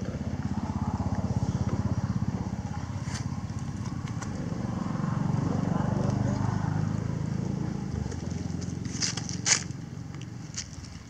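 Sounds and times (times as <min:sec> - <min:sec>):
small engine throbbing: 0:00.0 - 0:11.0.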